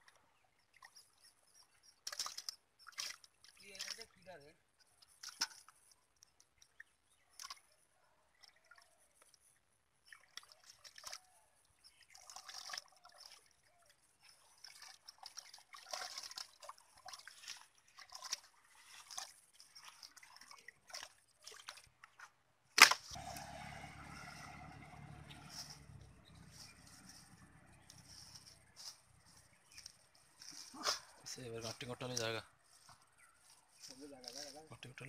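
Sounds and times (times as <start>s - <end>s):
hands sloshing in muddy water: 2.0s - 4.2s, 6.7s - 22.4s.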